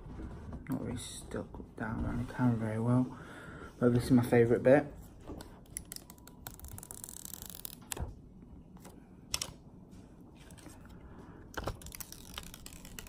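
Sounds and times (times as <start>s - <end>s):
plastic film peeling: 5.4s - 8.0s, 11.5s - 13.0s.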